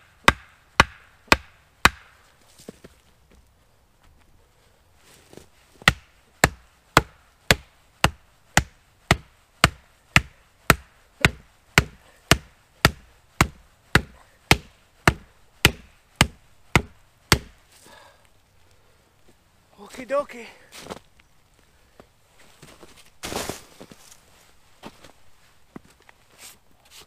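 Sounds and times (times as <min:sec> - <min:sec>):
hatchet chopping wood: 0:00.0 - 0:02.2, 0:05.8 - 0:17.6.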